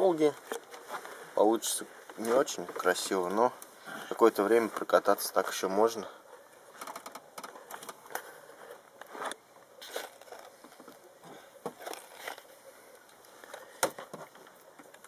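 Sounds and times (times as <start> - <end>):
plastic rustling: 6.8 - 12.6.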